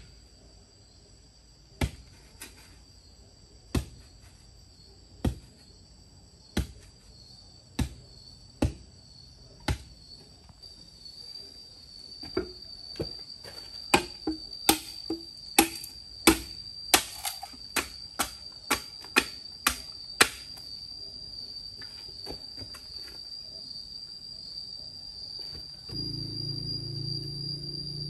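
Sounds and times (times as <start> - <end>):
steady high whine: 25.8 - 28.0.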